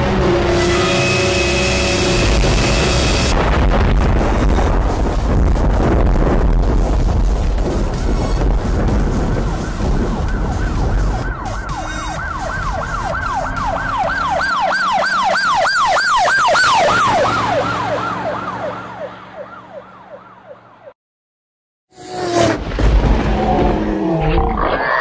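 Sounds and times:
low rumble: 2.1s - 11.7s
siren yelping: 9.2s - 20.9s.

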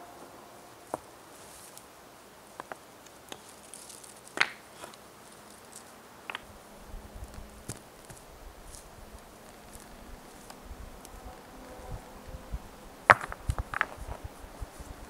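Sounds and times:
stones clacking together: 2.6s - 6.5s, 13.1s - 14.3s.

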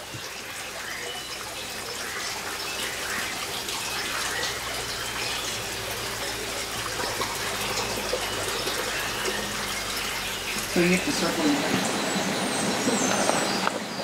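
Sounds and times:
running water: 0.0s - 14.0s.

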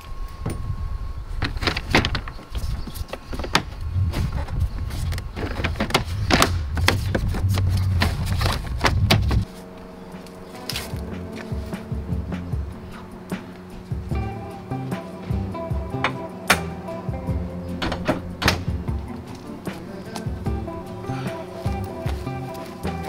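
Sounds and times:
low rumble: 3.6s - 23.0s
background music: 9.4s - 23.0s.

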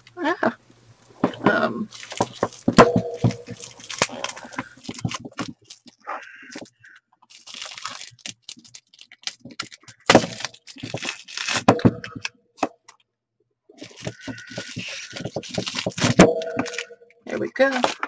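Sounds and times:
plastic wrapping crinkling and tearing: 1.9s - 12.3s, 13.8s - 18.0s.

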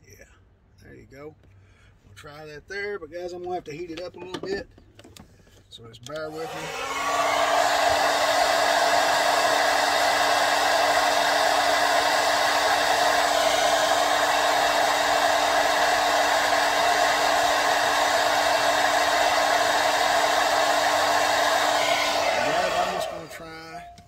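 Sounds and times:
hot-air blower running: 6.3s - 23.9s.

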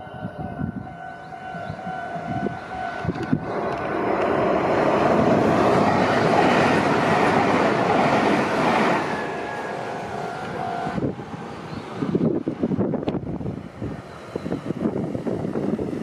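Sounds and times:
crossing warning bell ringing: 0.0s - 11.7s
electric train passing: 0.0s - 16.0s.

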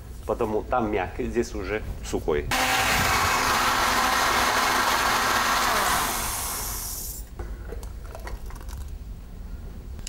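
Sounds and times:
blender running: 2.5s - 7.2s.

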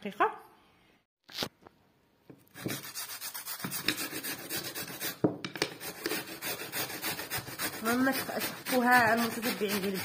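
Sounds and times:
potato rasping on metal grater: 2.6s - 5.2s, 5.8s - 10.0s.

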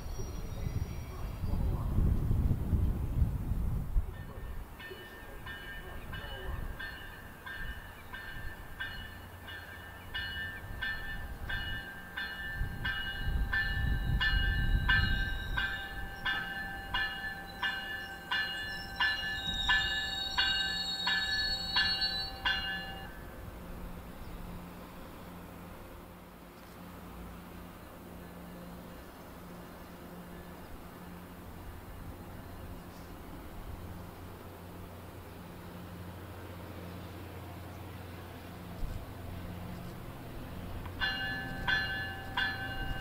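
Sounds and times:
train rumbling: 0.0s - 43.0s
train warning bell ringing: 4.1s - 23.3s, 40.6s - 43.0s.

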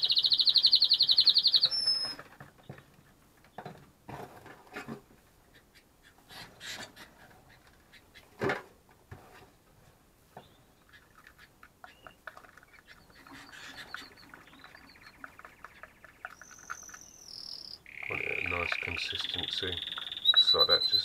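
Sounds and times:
canaries trilling: 0.0s - 2.8s, 10.4s - 21.0s.

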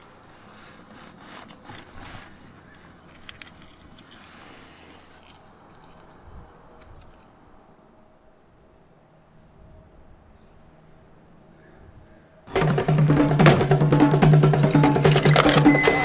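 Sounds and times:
hand scraping over carpet: 0.0s - 3.0s.

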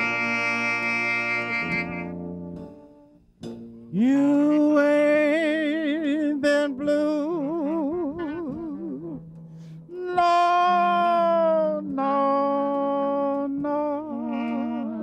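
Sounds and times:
jazz band accompaniment: 0.0s - 15.0s
man singing held notes with vibrato: 3.9s - 15.0s.

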